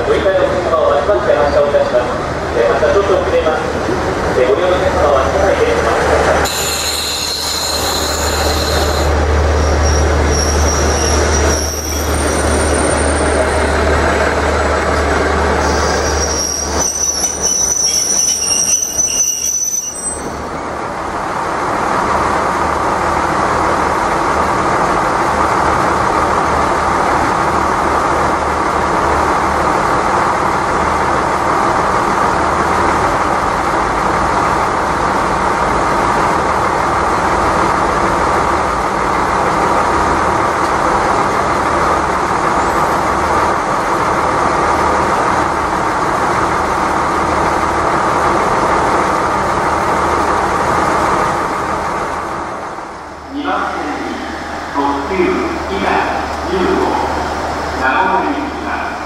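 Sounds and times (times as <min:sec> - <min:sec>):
diesel train rumble: 0:00.0 - 0:59.0
high-pitched metallic squeals: 0:06.5 - 0:13.3, 0:15.6 - 0:20.4.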